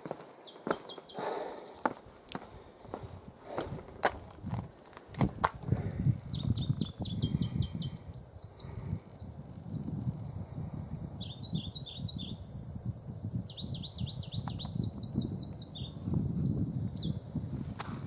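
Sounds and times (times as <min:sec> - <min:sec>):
footsteps on trail: 0:00.0 - 0:06.0, 0:17.7 - 0:18.0
songbirds chirping: 0:00.0 - 0:18.0.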